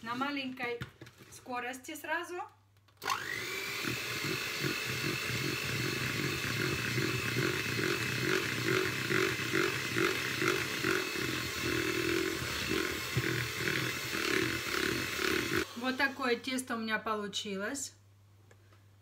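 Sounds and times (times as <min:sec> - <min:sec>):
electric mixer motor whine: 0:03.0 - 0:16.5.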